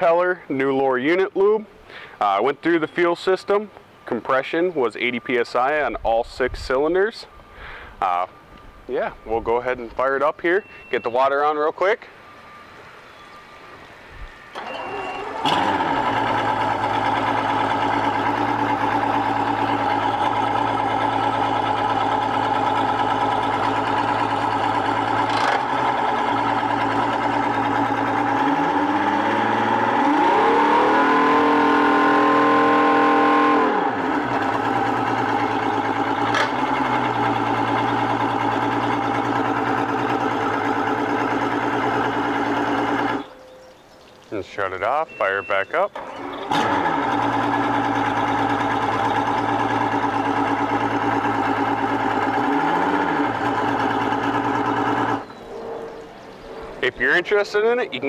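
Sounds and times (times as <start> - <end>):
outboard motor running: 14.6 - 43.4, 46.0 - 56.4.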